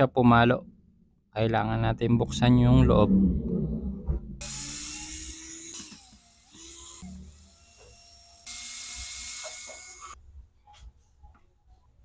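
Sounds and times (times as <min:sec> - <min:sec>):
power drill spinning screws: 0:04.4 - 0:10.2.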